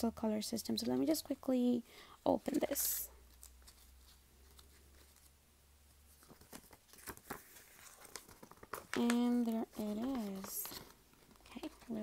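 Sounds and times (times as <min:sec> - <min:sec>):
paper crackling: 0:02.4 - 0:05.4, 0:06.1 - 0:12.0.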